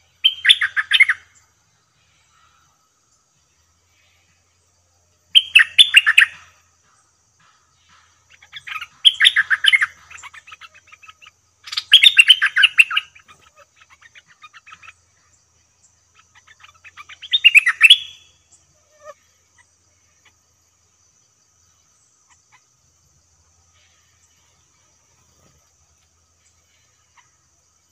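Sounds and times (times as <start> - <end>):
soft bird chattering notes: 0.0 - 1.2, 5.4 - 15.3, 16.0 - 18.2, 22.2 - 22.7
bird bubbling song phrases: 0.2 - 1.2, 8.4 - 15.0, 16.2 - 18.2.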